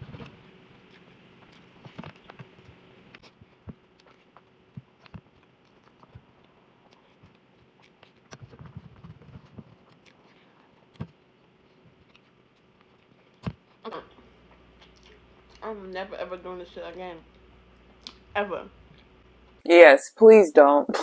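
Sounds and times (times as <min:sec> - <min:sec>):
chewing: 0:00.2 - 0:15.6.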